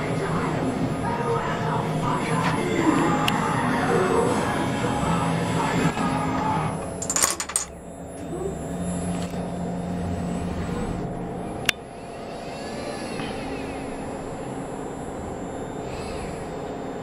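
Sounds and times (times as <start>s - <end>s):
dominoes clattering: 7.0s - 7.7s.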